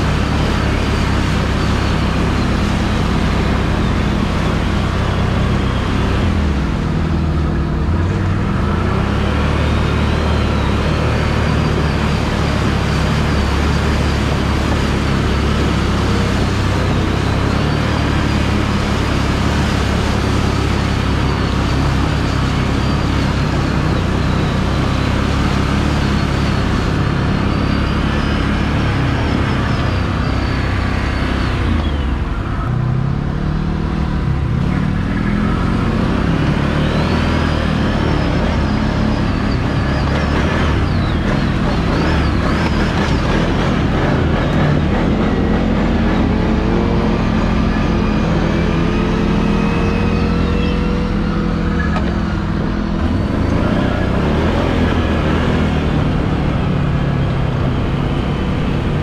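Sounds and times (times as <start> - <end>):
atv engine running: 0.0 - 59.0
high whine: 0.0 - 59.0.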